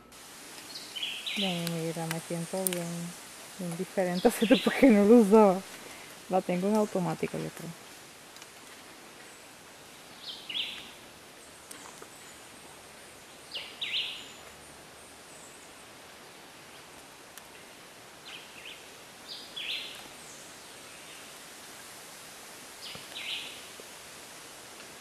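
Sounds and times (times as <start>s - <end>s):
faint outdoor hiss: 0.0s - 25.0s
bird calling: 3.8s - 6.1s.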